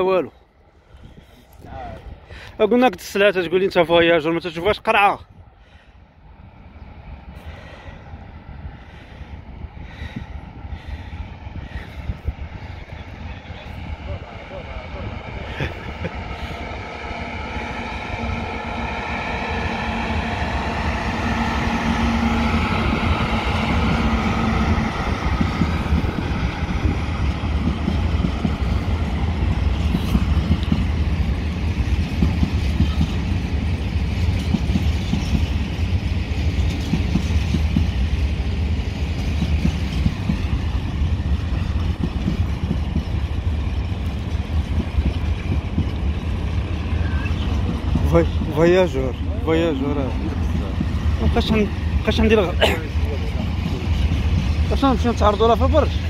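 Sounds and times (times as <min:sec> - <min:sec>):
train rumble: 0:00.0 - 0:56.0
electric locomotive whine: 0:00.3 - 0:56.0
wheels clattering on rails: 0:26.8 - 0:56.0.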